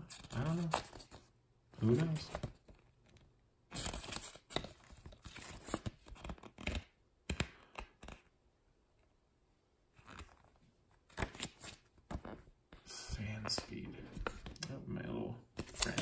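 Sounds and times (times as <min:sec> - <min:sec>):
paper pages rustling: 0:00.0 - 0:06.9, 0:13.4 - 0:14.7, 0:15.6 - 0:16.0.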